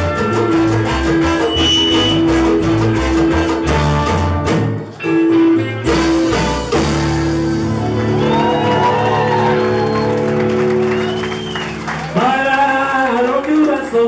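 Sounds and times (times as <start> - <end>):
trombones holding long notes: 0.0 - 4.7, 5.8 - 7.7
salsa band playing: 0.0 - 12.9.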